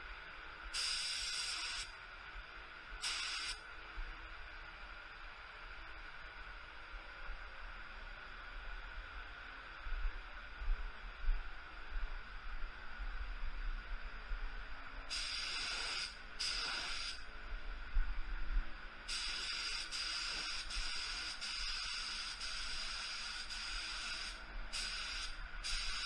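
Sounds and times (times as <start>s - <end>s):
steady background hiss: 0.0s - 26.0s
spray gun hissing blasts: 0.8s - 1.9s, 3.0s - 3.6s, 15.1s - 17.2s, 19.1s - 26.0s.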